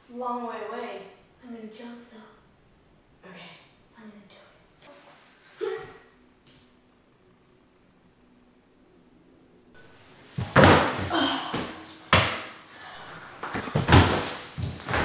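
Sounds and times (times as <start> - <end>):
bodies landing heavily: 10.3 - 12.6, 13.4 - 15.0.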